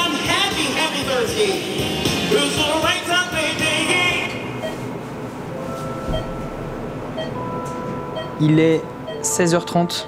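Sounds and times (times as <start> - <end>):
backing music: 0.0 - 4.4.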